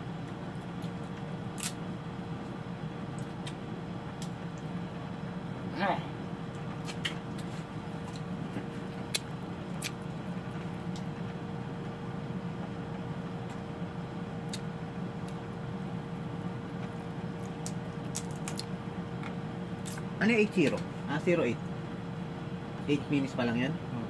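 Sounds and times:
low room hum: 0.0 - 24.0
crab shells cracking: 17.5 - 18.7.

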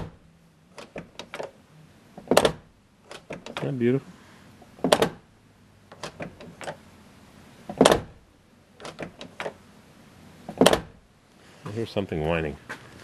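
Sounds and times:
car door shutting: 0.0 - 0.2, 2.2 - 3.8, 4.6 - 5.3, 7.7 - 8.2, 10.5 - 11.0
door handle and latch clicks: 0.8 - 1.5, 2.2 - 3.7, 4.8 - 5.2, 5.9 - 6.8, 8.8 - 9.6.

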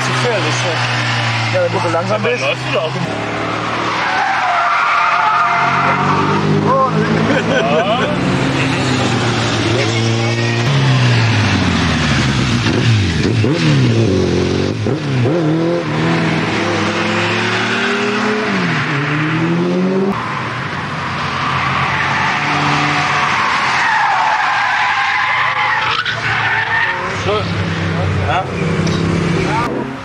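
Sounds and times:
car tyres squealing: 0.0 - 13.6, 20.1 - 29.9
motorcycle engine revving: 5.7 - 20.2, 27.2 - 30.0.

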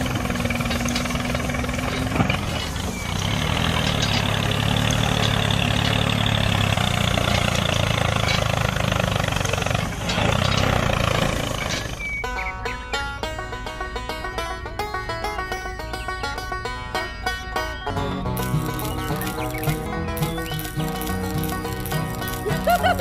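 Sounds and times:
toy motor humming and whining: 18.4 - 23.0.

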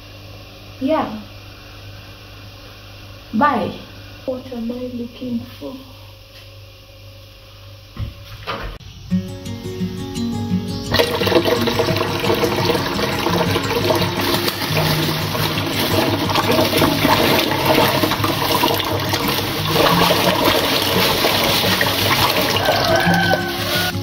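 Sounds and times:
tap running into bowl of water: 11.0 - 23.5
dry beans tipped into water: 11.0 - 23.9.

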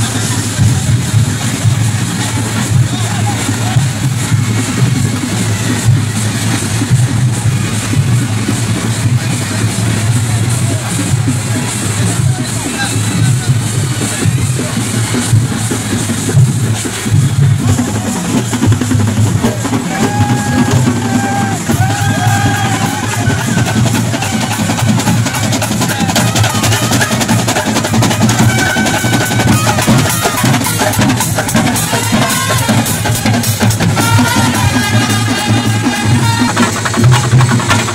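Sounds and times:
bass and snare drums: 0.0 - 37.9
brass band playing: 0.0 - 37.9
trumpets playing melody: 19.5 - 37.9.

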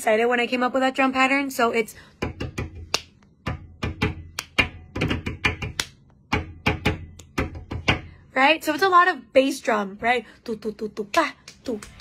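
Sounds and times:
drum pattern tapped by hand: 2.2 - 8.2.

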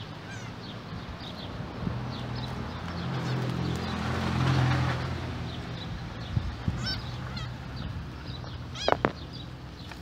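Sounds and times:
motor vehicle engine hum: 0.0 - 10.0.

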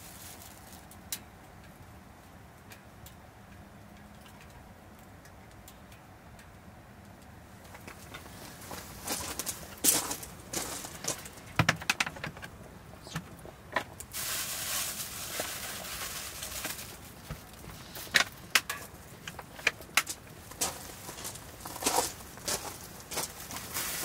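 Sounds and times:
wood fire crackling and popping: 7.1 - 24.0
fire hissing: 14.1 - 18.4.

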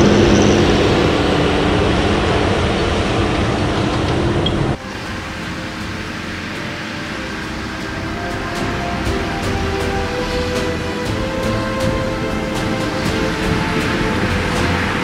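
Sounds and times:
tractor engine and machinery: 0.0 - 15.0
background music with held tones: 4.7 - 15.0.

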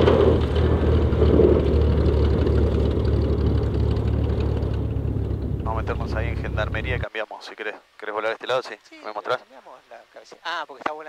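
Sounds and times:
noisy rush of landing: 0.0 - 7.0
small plane engine droning: 0.0 - 7.0.

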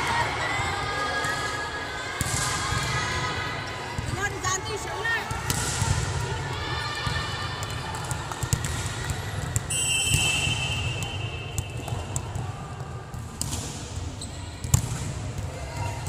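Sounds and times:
referee whistle blast: 9.7 - 11.8.

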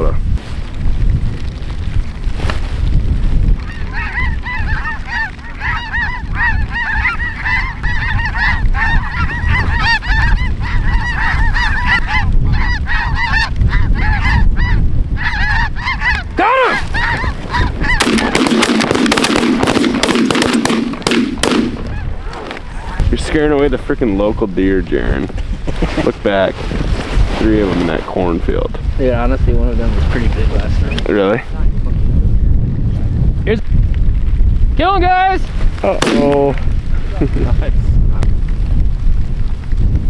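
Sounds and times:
low wind rumble: 0.0 - 40.0
geese calling: 3.6 - 23.0.

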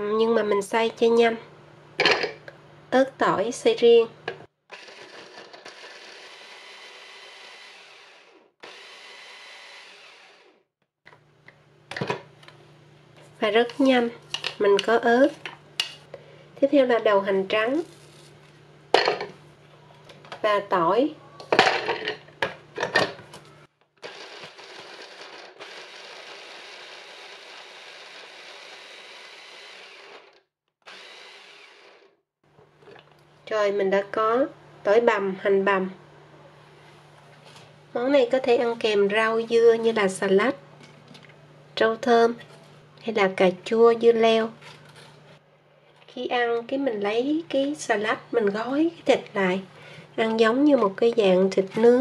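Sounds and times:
electric chopper motor running: 4.7 - 10.6, 24.0 - 32.2.

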